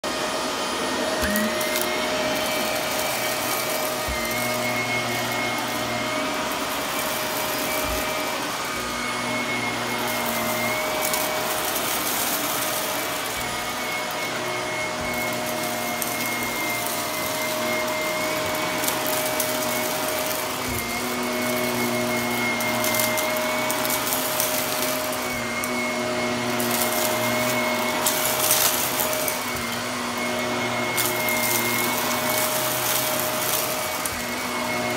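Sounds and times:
vacuum cleaner motor whine: 0.0 - 34.9
debris crackling in vacuum: 14.9 - 34.9.

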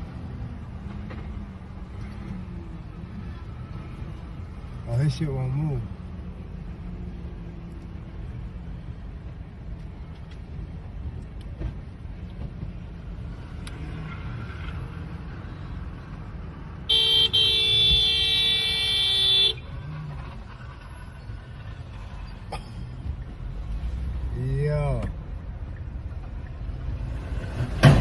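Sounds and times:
car road and engine rumble: 0.0 - 28.0
car horn blaring: 16.9 - 19.7.

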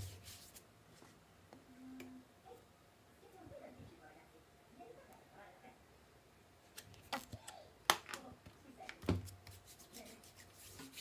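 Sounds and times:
hands rubbing skin: 9.3 - 11.0.

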